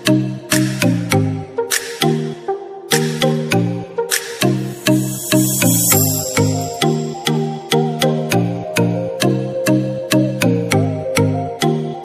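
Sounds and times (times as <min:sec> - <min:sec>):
electronic music with beat: 0:00.0 - 0:08.8.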